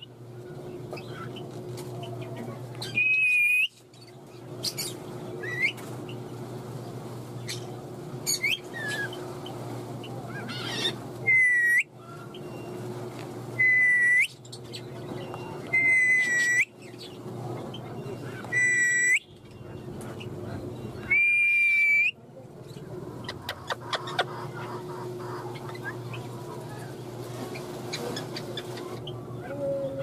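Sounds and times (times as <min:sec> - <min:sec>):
parakeet whistling: 0:10.5 - 0:11.9, 0:13.6 - 0:14.4, 0:15.7 - 0:16.7, 0:18.5 - 0:19.3.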